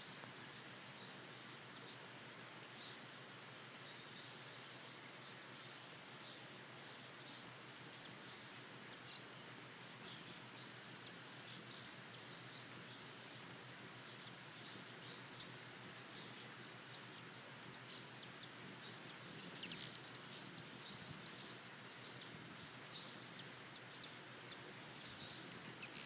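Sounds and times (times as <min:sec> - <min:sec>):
steady low hiss: 0:00.0 - 0:26.0
hummingbird chips: 0:10.0 - 0:26.0
high squeaky bird notes: 0:19.6 - 0:20.1, 0:25.6 - 0:26.0.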